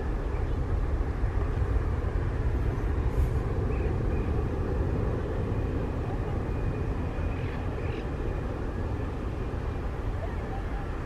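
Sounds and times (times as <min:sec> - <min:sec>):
jet engines rumbling: 0:00.0 - 0:11.0.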